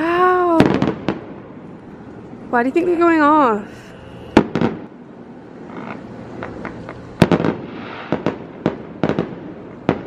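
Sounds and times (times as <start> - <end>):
firework pops and crackles: 0.5 - 1.3, 4.4 - 4.9, 5.6 - 10.0
firework bang: 0.5 - 1.5, 4.3 - 4.9, 5.7 - 10.0.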